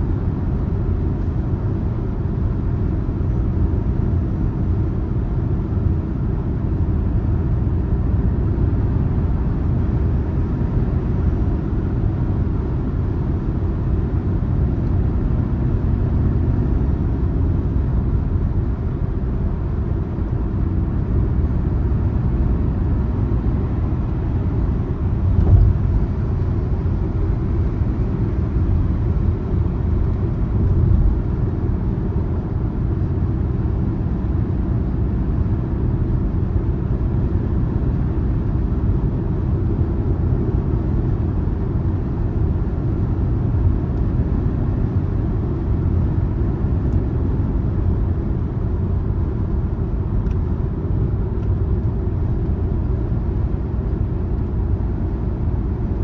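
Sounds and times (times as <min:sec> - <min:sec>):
car engine and tyre rumble: 0:00.0 - 0:56.0
short thump: 0:25.3 - 0:26.0.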